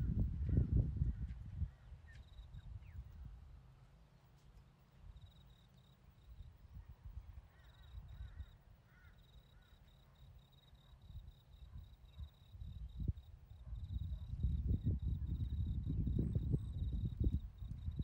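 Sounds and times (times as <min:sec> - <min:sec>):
low rumbling on microphone: 0:00.0 - 0:02.0, 0:13.0 - 0:18.0.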